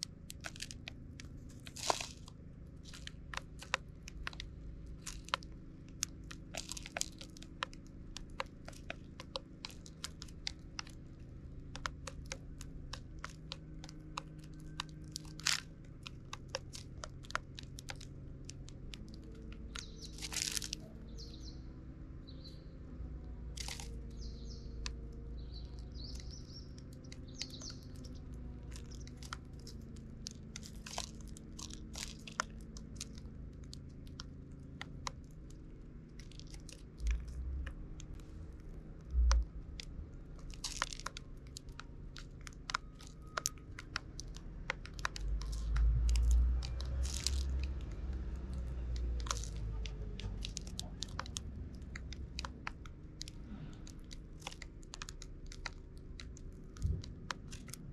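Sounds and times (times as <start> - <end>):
beaks tapping on plastic: 0.0 - 21.6, 23.5 - 38.2, 39.0 - 57.9
seeds cracking: 0.0 - 21.6, 22.5 - 57.9
bird chirps: 19.6 - 22.9, 23.8 - 29.2.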